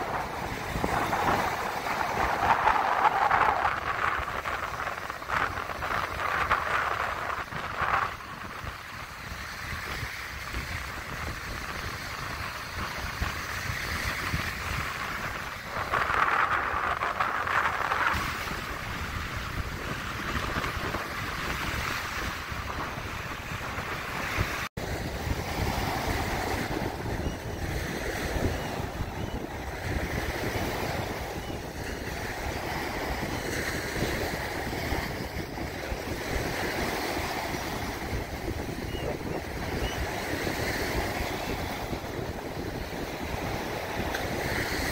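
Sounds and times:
waves breaking on beach: 0.0s - 44.9s
wind buffeting microphone: 0.0s - 44.9s.

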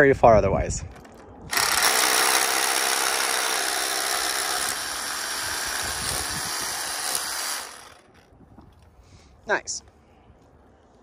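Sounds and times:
hammer drill boring into rock: 1.5s - 8.2s.

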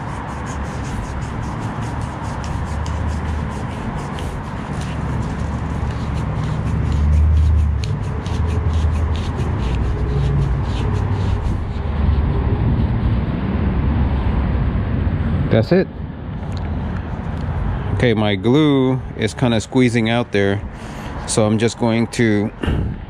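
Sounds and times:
plastic rubbing and scraping: 0.0s - 13.3s
low rumble: 9.8s - 18.1s, 22.6s - 23.0s.

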